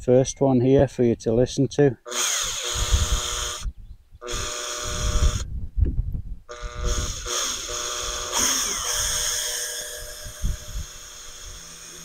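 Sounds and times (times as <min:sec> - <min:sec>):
cordless drill motor whining: 0:02.1 - 0:05.5, 0:06.5 - 0:12.0.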